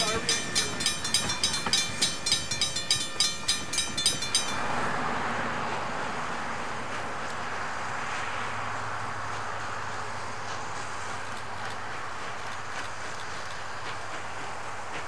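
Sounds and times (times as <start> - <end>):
crossing bell ringing: 0.0 - 6.8
steady rushing noise: 0.0 - 15.0.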